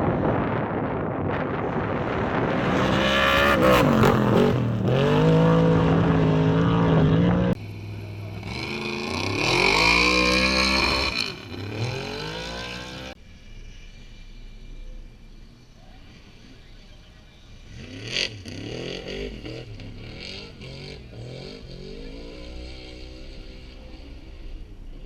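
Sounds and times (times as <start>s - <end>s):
race car engine revving past: 17.6s - 25.0s.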